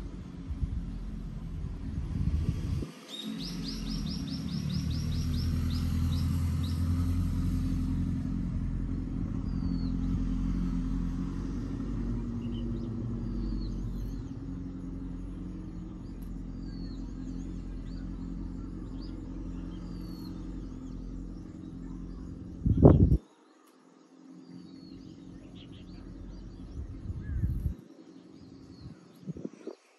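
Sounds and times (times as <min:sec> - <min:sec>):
engine rumble: 0:00.0 - 0:29.9
small birds chirping: 0:02.4 - 0:29.9.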